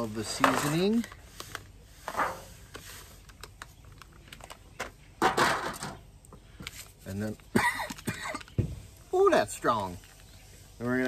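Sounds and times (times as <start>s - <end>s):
foil bag rustling: 0.0s - 4.8s.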